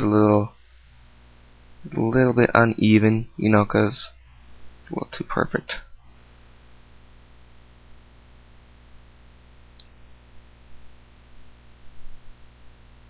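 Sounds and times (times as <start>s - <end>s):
faint hiss: 0.0s - 13.0s
low electrical hum: 0.0s - 13.0s
faint clicks: 9.7s - 10.0s.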